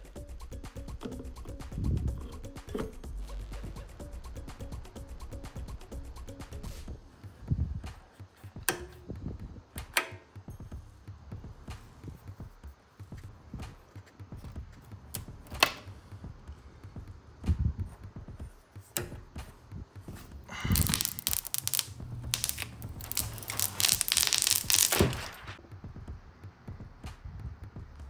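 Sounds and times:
rustling and scraping: 17.8s - 25.6s.

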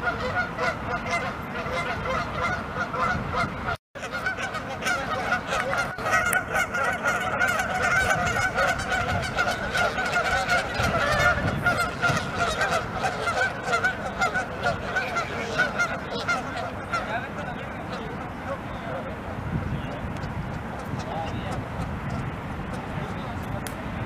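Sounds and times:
geese honking: 0.0s - 21.9s.

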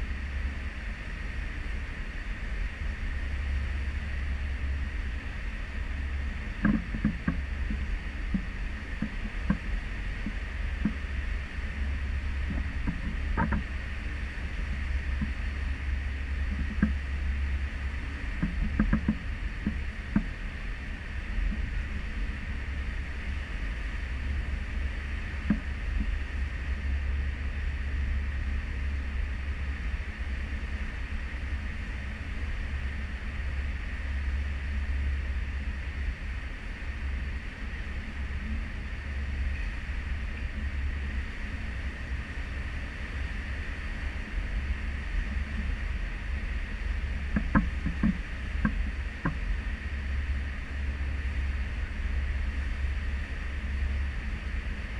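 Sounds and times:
wind: 0.0s - 54.9s.

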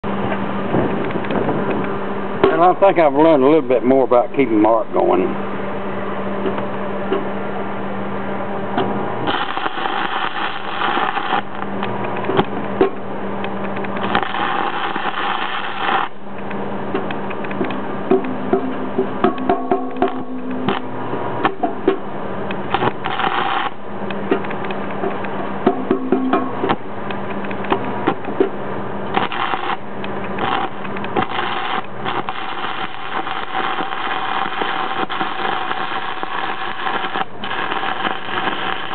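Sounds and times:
steady low hum: 0.0s - 38.9s
welding arc crackling: 9.2s - 12.7s, 13.5s - 17.7s, 19.9s - 21.6s, 22.5s - 25.3s, 29.0s - 38.9s
welding rod striking plate: 9.3s - 13.0s, 13.7s - 16.2s, 17.0s - 28.5s, 29.1s - 38.9s.

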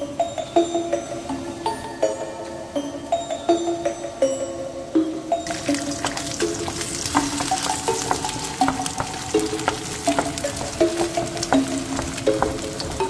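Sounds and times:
eggs sizzling in pan: 5.4s - 13.0s.

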